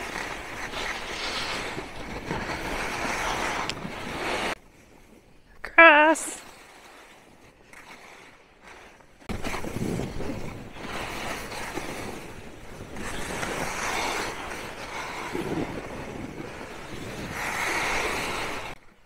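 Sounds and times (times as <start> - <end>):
skis scraping over snow: 0.0 - 5.2, 6.2 - 18.8
wind rushing over microphone: 9.3 - 18.8.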